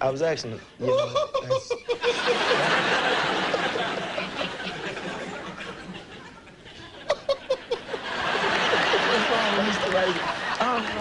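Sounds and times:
man laughing: 0.8 - 4.4.

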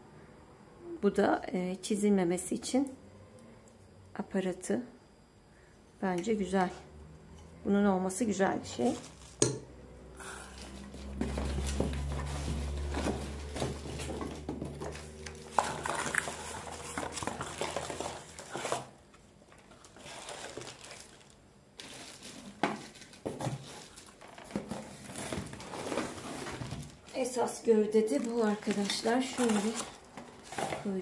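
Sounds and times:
low steady hum: 0.0 - 31.0
plastic packaging crinkling: 8.8 - 9.4, 10.4 - 31.0.

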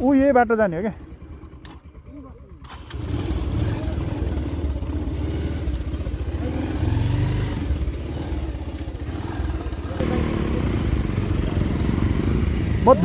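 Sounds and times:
motorcycle engine revving: 0.0 - 13.0
second motorcycle passing close: 2.6 - 13.0.

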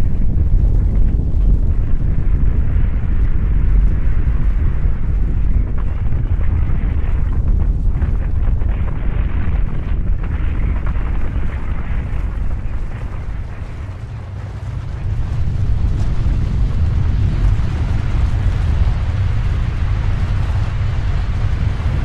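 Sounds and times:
avalanche deep rumble: 0.0 - 22.0.

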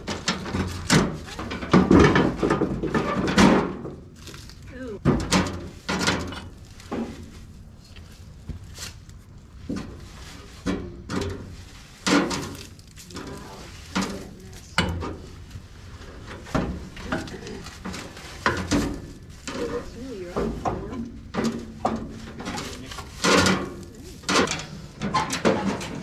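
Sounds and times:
hard objects knocking and clunking: 0.0 - 4.2, 16.2 - 26.0
quiet scraping and rustling: 5.3 - 26.0.

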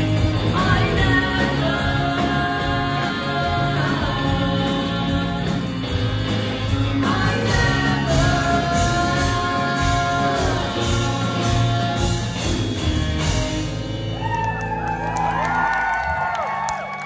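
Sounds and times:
woman singing: 0.0 - 5.8, 6.8 - 12.6
live rock band playing: 0.0 - 15.9.

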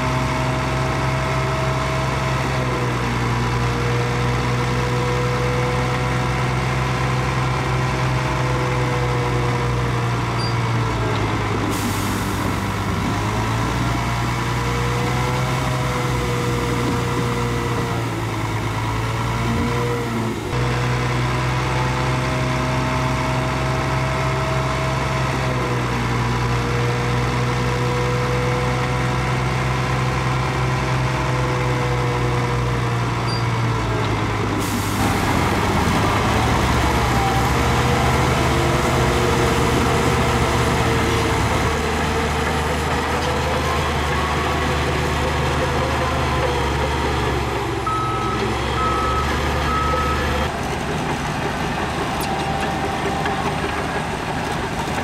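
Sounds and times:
heavy diesel machinery running: 0.0 - 55.0
reversing alarm beeping: 45.9 - 50.5, 52.0 - 54.4.

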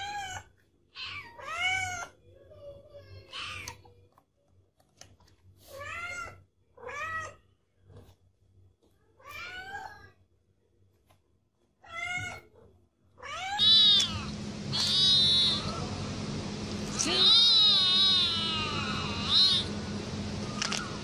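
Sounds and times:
cat meowing: 13.2 - 15.9, 17.0 - 19.7
steady hum and hiss: 13.5 - 21.0.

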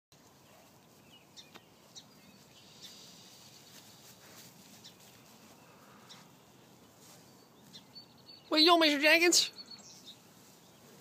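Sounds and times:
distant birds chirping: 0.2 - 11.0.

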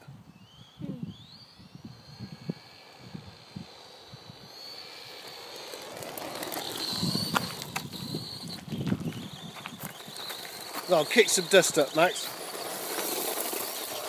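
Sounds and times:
electric motor whining: 0.0 - 14.0
tyres on gravel: 2.8 - 14.0.

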